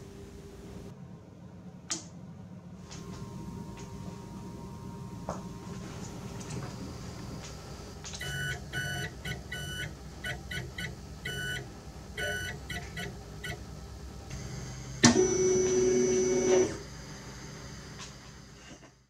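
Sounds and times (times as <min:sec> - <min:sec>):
click: 0:01.9 - 0:02.1
stepper motors whining: 0:03.0 - 0:18.9
louder steady tone: 0:03.1 - 0:09.0.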